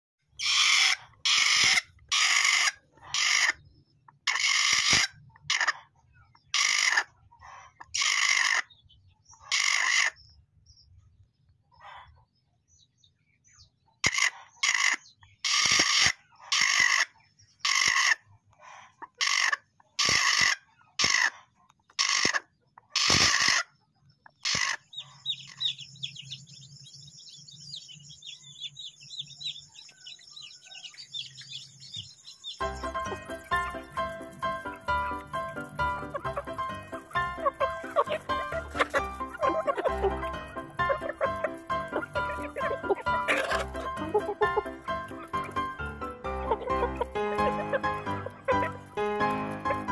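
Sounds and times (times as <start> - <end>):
hen squawking harshly: 0.4 - 3.6, 4.3 - 5.7, 6.5 - 7.1, 8.0 - 8.7, 9.4 - 10.2, 14.0 - 18.2, 19.2 - 21.4, 22.0 - 23.6, 24.4 - 24.8, 32.8 - 49.9.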